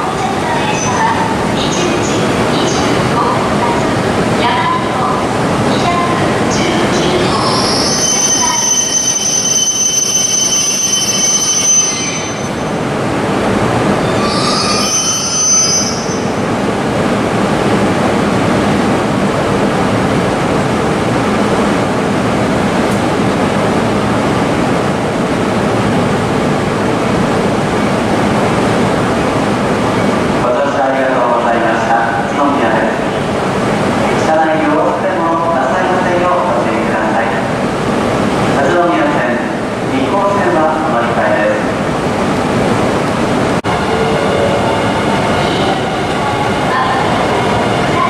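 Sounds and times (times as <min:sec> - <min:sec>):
train brakes squealing: 0:07.0 - 0:12.6, 0:14.0 - 0:16.4.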